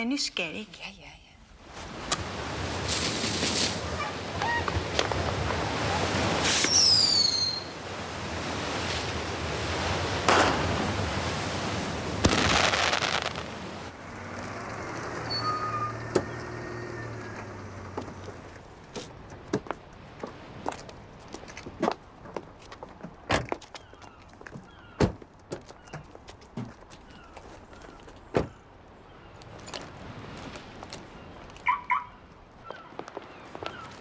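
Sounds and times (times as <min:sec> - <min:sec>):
fireworks bursting and crackling: 0:10.2 - 0:11.2, 0:12.1 - 0:13.9
sharp firework bang: 0:10.3 - 0:10.8, 0:12.2 - 0:13.5.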